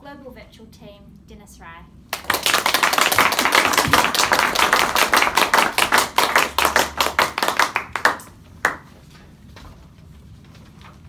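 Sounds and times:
small audience applauding: 0:02.1 - 0:08.9.

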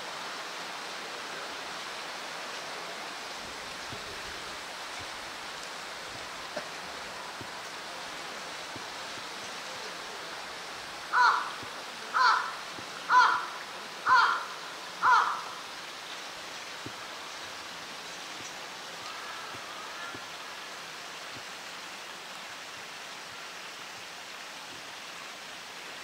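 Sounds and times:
crow cawing: 0:11.1 - 0:15.7.

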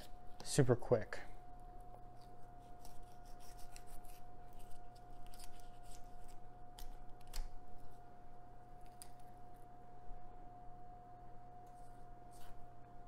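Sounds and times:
faint steady hum: 0:00.0 - 0:13.0
knife scraping over fish bones: 0:02.6 - 0:06.4.

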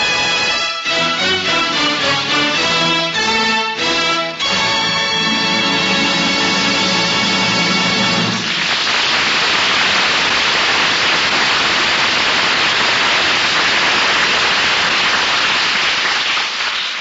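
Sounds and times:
music: 0:00.0 - 0:08.5.

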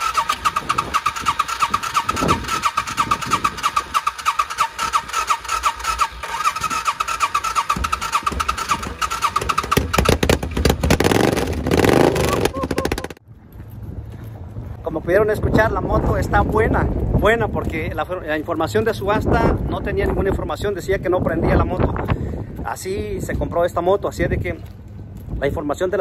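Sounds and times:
motorcycle engine running unevenly: 0:05.8 - 0:13.2.

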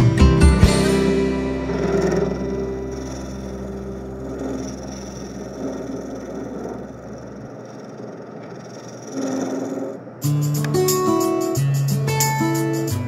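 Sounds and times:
guitar music: 0:00.0 - 0:05.2, 0:10.2 - 0:13.0
low hum: 0:01.0 - 0:10.8
wood lathe whirring: 0:01.8 - 0:10.2
turning tool scraping wood: 0:01.9 - 0:10.1.

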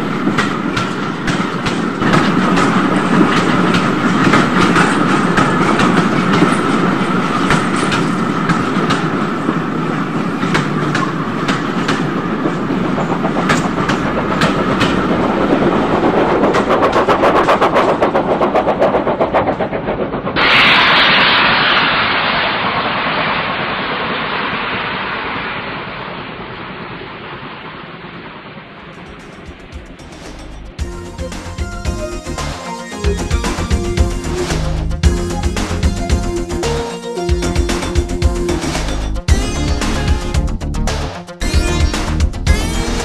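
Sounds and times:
wheels clicking over rail joints: 0:00.0 - 0:18.2
model train rumbling: 0:00.0 - 0:21.1, 0:28.5 - 0:41.1.

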